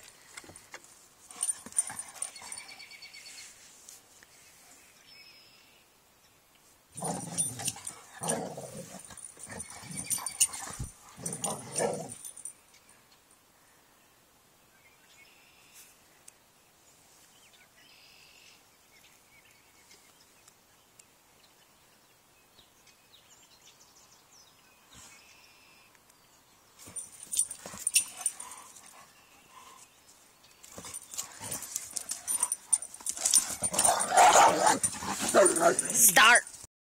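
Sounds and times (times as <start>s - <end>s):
dogs growling and barking: 1.3s - 2.6s, 7.0s - 12.5s, 26.9s - 29.8s, 30.7s - 36.2s.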